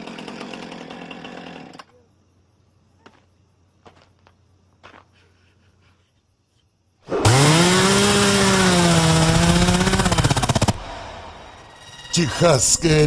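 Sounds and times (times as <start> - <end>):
chainsaw revving: 0.0 - 1.9, 7.1 - 10.8.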